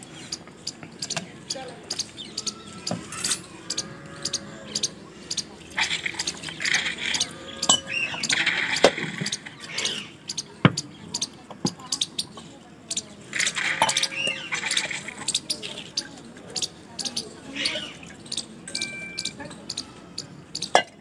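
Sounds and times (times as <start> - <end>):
birds chirping: 0.0 - 21.0
metal utensils clinking: 6.2 - 9.0, 18.7 - 19.5.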